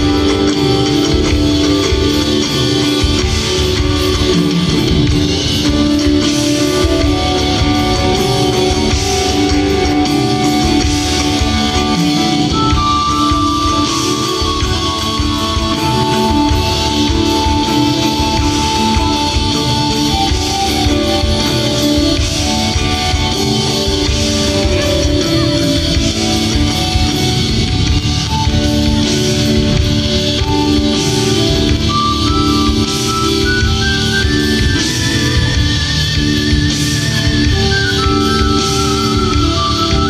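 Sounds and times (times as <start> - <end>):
live rock band playing: 0.0 - 40.0.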